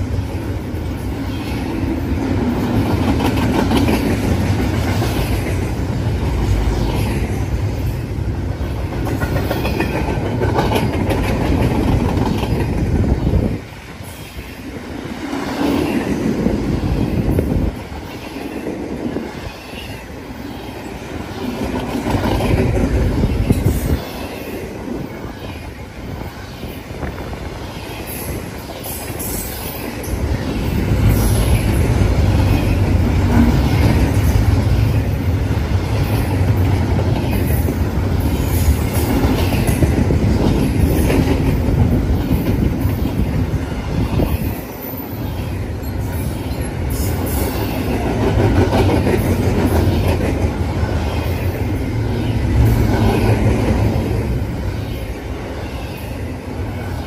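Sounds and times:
steel wheels rumbling on rail: 0.0s - 57.0s
wheels clicking over rail joints: 8.8s - 13.0s.

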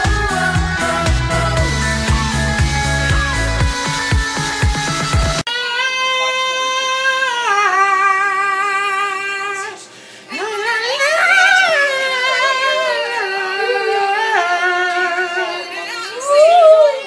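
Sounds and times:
man singing with vibrato: 0.0s - 3.6s, 5.5s - 17.0s.

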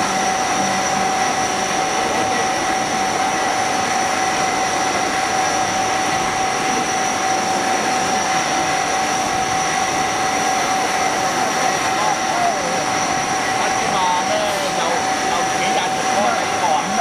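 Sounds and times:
machining whine: 0.0s - 17.0s
coolant spraying hiss: 8.5s - 17.0s.

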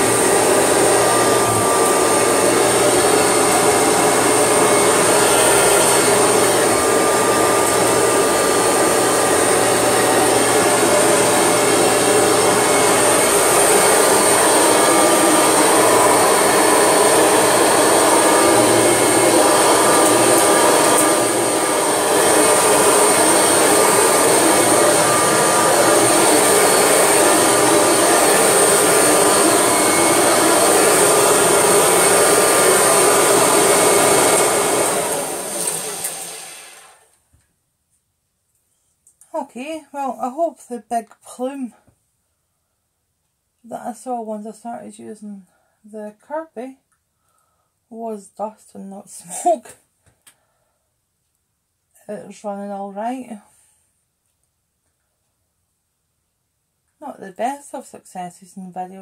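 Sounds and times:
upright vacuum cleaner on carpet: 0.0s - 37.2s.

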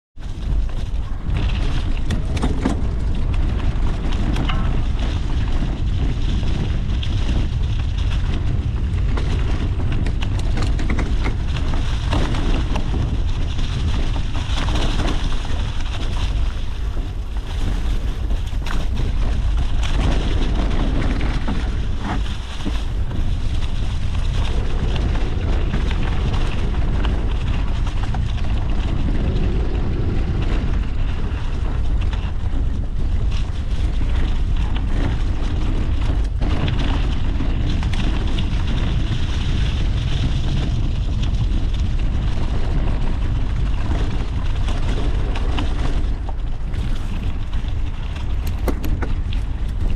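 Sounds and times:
knocks and rattles from bumpy ground: 0.2s - 29.4s
wind buffeting microphone: 0.2s - 49.9s.

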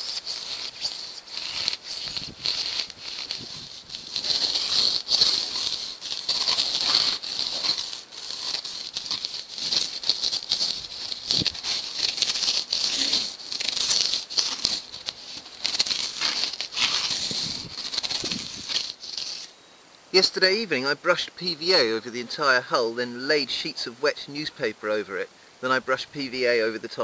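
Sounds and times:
rasp scraping polystyrene: 0.0s - 19.5s.

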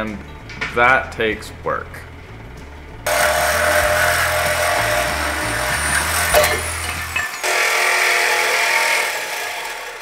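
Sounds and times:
angle grinder cutting steel: 3.1s - 10.0s.

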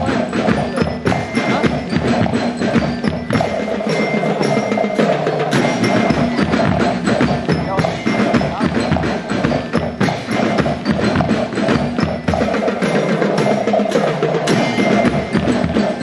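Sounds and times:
high ringing notes: 0.0s - 16.0s
marching band drum beat: 0.0s - 16.0s.

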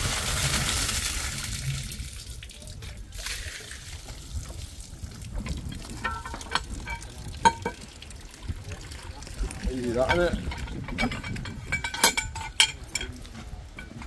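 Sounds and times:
water splashing onto road: 0.0s - 10.3s.

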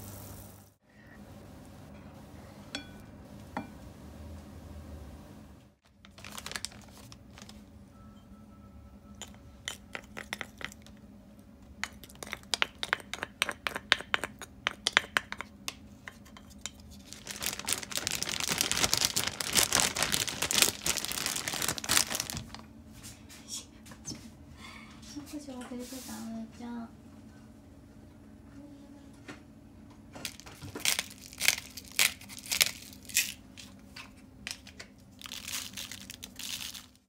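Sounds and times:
plastic bag crinkling and rustling: 5.8s - 7.6s, 16.9s - 22.6s, 30.2s - 33.4s, 34.5s - 37.0s.

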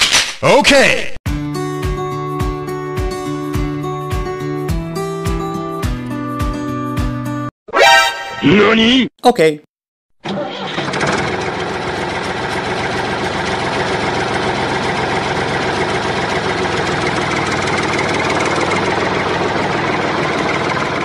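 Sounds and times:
tractor engine chugging: 10.2s - 21.0s.

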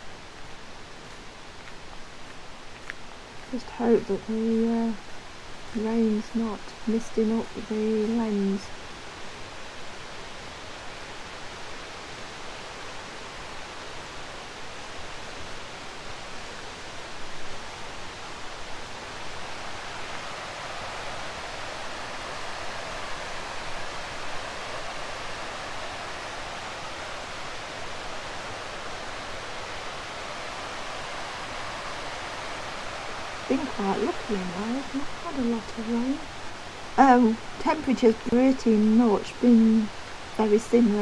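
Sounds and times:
river rushing over rocks: 8.7s - 39.3s.

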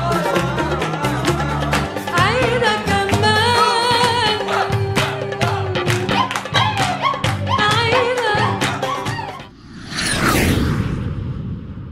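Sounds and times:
background music with percussion: 0.0s - 9.5s.

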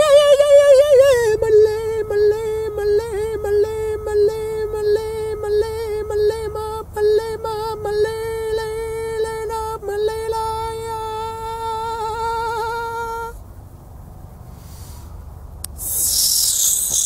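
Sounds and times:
man singing wordless held notes: 0.0s - 13.4s.

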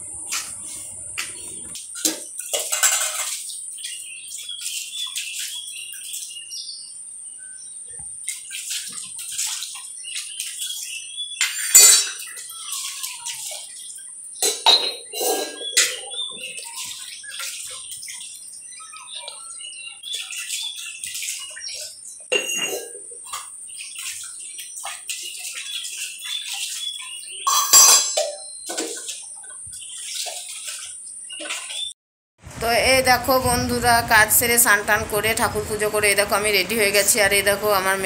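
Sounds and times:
metal pots clanking and scraping: 0.0s - 3.5s, 11.4s - 12.5s, 14.4s - 16.7s, 22.3s - 23.5s, 27.5s - 29.6s
water splashing and sloshing: 0.0s - 6.5s, 7.9s - 32.0s.

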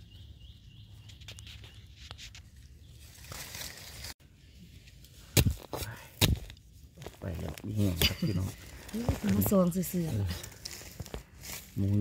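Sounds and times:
rustling and scraping in soil: 0.8s - 12.0s.

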